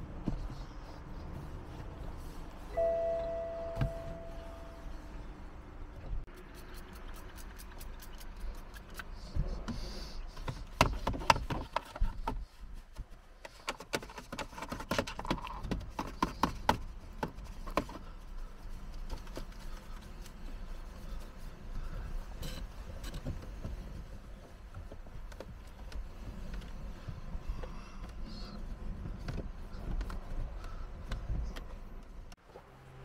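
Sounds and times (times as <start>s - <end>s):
brush clicking and scraping plastic: 13.4s - 18.1s.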